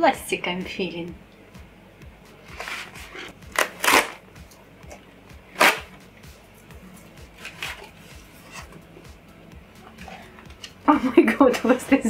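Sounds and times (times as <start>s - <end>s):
quiet background music: 0.0s - 12.0s
cardboard tearing: 2.6s - 4.2s, 5.6s - 5.9s.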